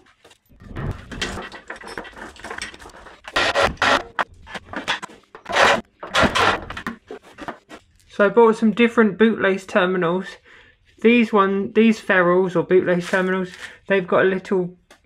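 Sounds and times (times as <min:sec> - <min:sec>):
rustling and scraping handling noise: 0:00.0 - 0:08.2, 0:12.8 - 0:14.1.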